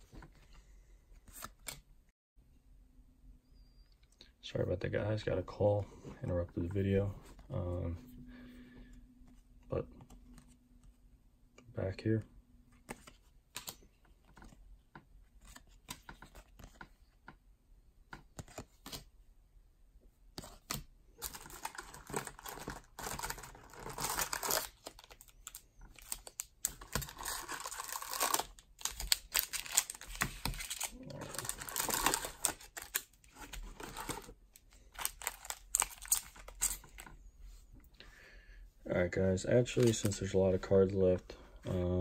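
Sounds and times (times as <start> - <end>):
foil wrappers crinkling: 21.2 - 36.9.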